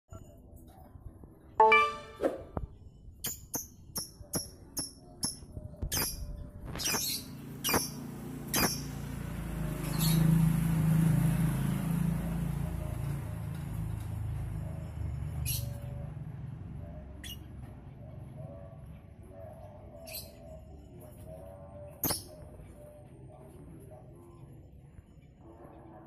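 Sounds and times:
bell-like chime: 1.6 - 2.2.

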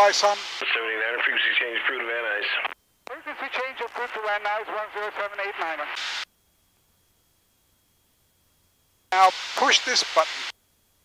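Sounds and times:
man's voice over intercom: 3.1 - 5.9, 9.2 - 10.3.

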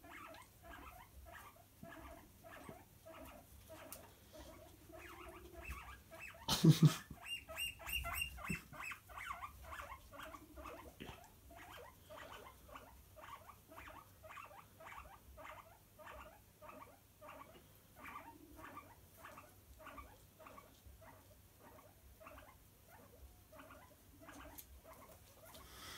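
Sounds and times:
guinea pigs squeaking: 0.0 - 25.8.

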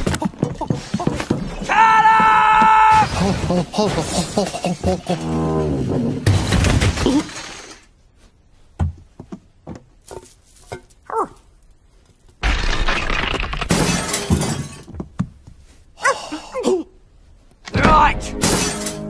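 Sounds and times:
heavy furniture toppling and smashing: 6.2 - 7.5.

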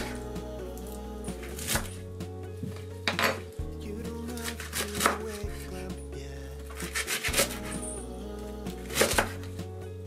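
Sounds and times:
background music with deep bass: 0.0 - 10.0
knife cutting on wooden board: 4.4 - 5.4, 6.7 - 7.8, 8.8 - 9.5.

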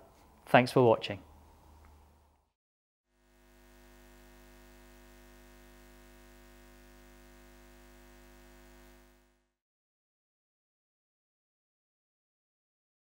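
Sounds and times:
faint hum of held tones: 3.2 - 9.5.

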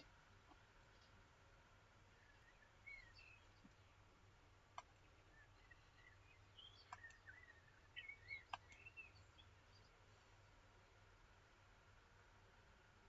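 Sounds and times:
birds chirping: 0.0 - 12.3.

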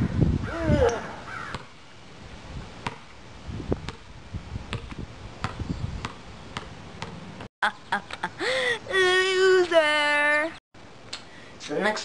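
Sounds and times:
basketball bouncing on concrete: 1.5 - 1.8, 2.8 - 7.2.

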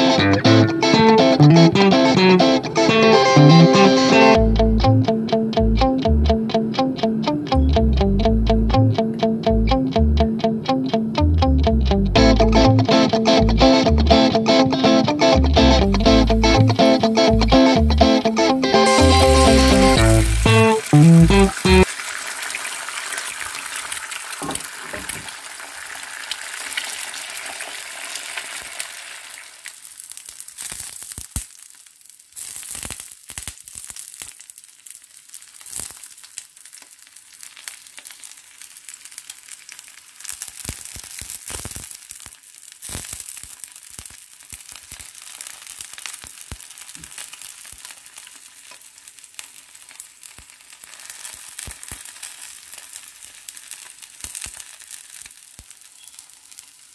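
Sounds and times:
eggs sizzling in oil: 16.1 - 56.9.

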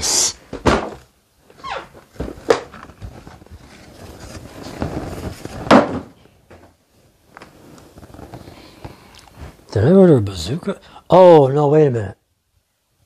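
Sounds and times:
cardboard scraping: 1.8 - 6.2
knocks on hard case: 5.6 - 6.2.

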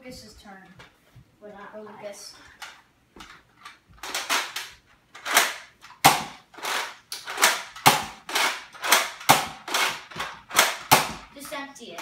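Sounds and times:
toy blaster clacks and shots: 4.0 - 11.3.

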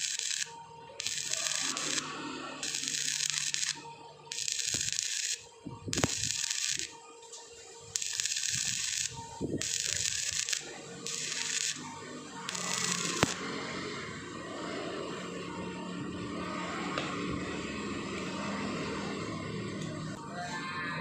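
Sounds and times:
welding arc sizzling: 0.0 - 15.6.

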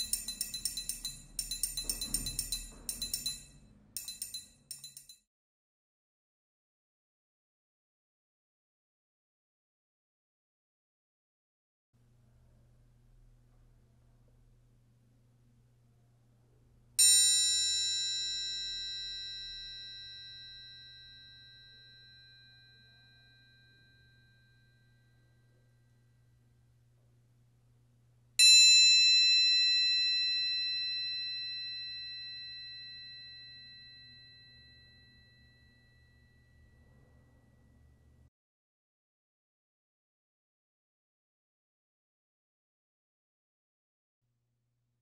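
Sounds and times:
triangle ringing: 0.0 - 5.2, 17.0 - 26.0, 28.4 - 37.8.

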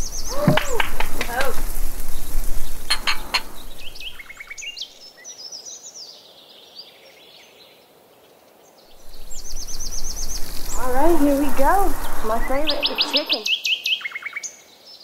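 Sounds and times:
birds chirping and trilling: 0.0 - 14.9
wine glasses clinking: 2.9 - 3.7.

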